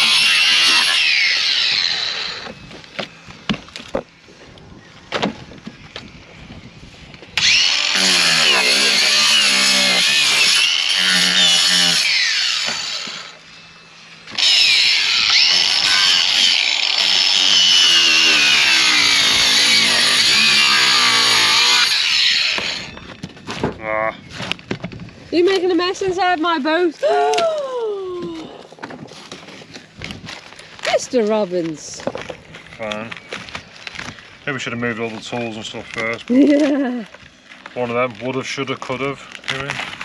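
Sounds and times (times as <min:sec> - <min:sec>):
saw cutting wooden deck: 0:00.0 - 0:03.9, 0:07.4 - 0:13.7, 0:14.3 - 0:23.1.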